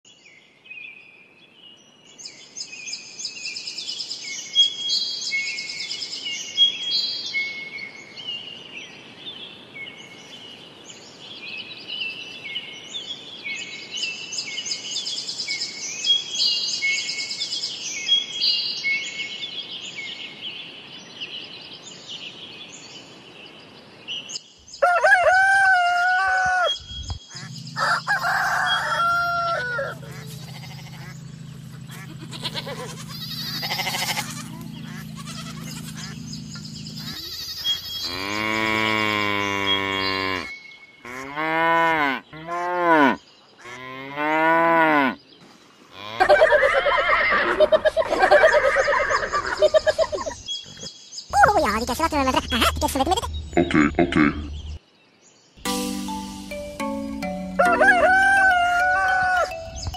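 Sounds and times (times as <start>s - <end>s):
rooster crowing: 24.8s - 26.8s, 27.4s - 31.1s, 57.6s - 59.7s
small birds chirping: 26.6s - 41.2s, 48.9s - 57.6s.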